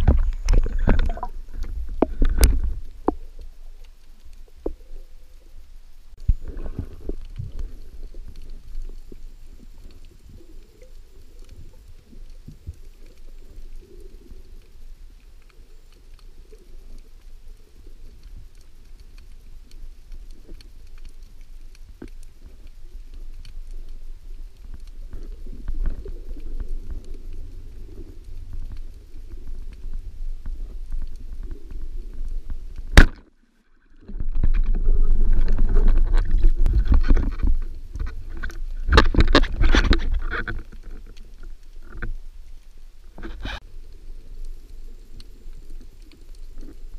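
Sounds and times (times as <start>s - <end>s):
underwater churning and clattering: 0.0s - 3.2s, 34.0s - 41.2s
low underwater rumble: 0.0s - 46.9s.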